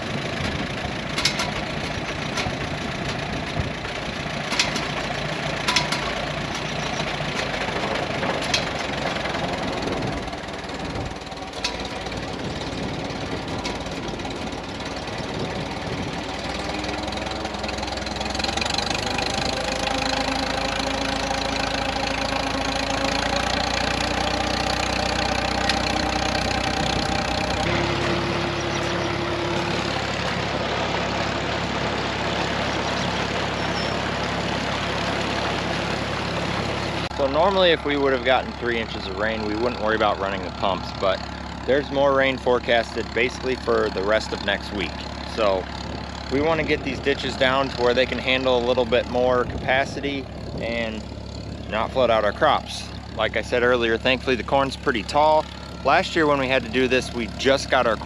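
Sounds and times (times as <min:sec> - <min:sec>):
tractor engine running: 0:00.0 - 0:58.0
rising whine: 0:09.7 - 0:38.2.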